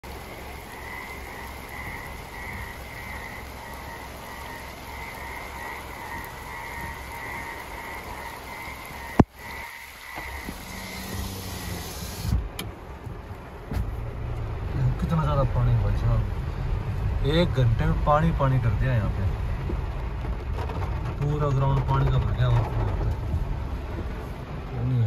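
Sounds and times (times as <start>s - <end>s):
car engine hum: 0.0s - 25.0s
frog chorus croaking: 0.2s - 11.2s.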